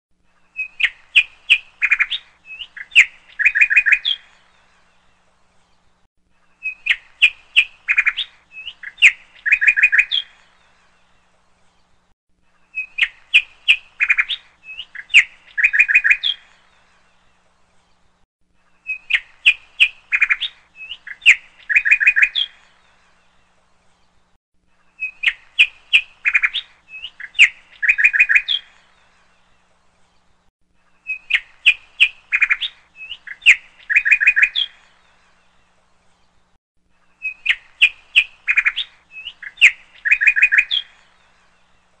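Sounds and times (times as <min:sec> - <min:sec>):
bird chirping and trilling: 0:00.4 - 0:04.6, 0:06.5 - 0:10.9, 0:12.6 - 0:17.3, 0:18.8 - 0:24.2, 0:24.9 - 0:29.6, 0:31.0 - 0:35.6, 0:37.1 - 0:41.9.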